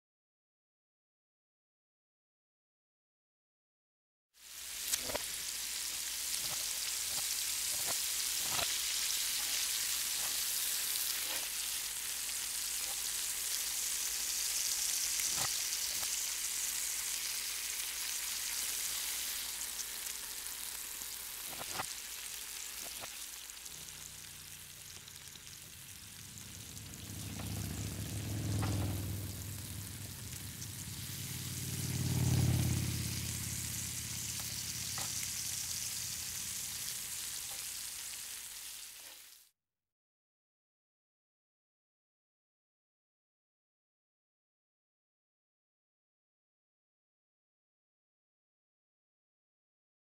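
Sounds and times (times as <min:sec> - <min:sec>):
meat sizzling on a grill: 0:04.4 - 0:39.5
low rumble: 0:23.8 - 0:36.6.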